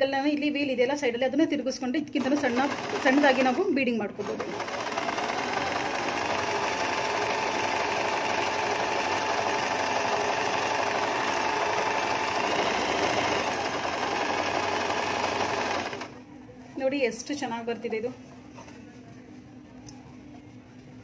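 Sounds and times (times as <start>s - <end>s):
sewing machine stitching: 2.2s - 3.6s, 4.2s - 16.2s.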